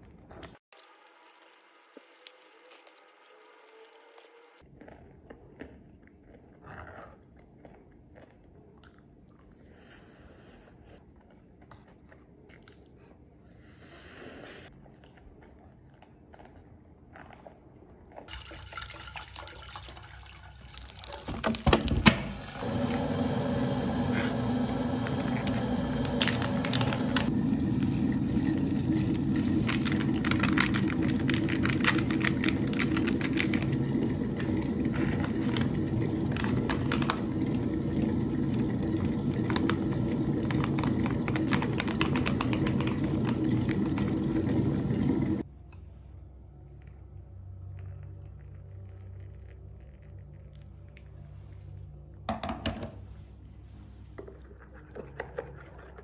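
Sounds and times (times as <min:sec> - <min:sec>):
plastic bag emptied into bowl: 0:18.7 - 0:22.2, 0:25.3 - 0:45.3
electric kettle heating water: 0:21.5 - 0:45.5
paper packaging handled: 0:26.2 - 0:33.7, 0:34.8 - 0:37.4
sachet crinkling and tapping: 0:29.0 - 0:33.7, 0:36.3 - 0:37.2, 0:39.4 - 0:43.4.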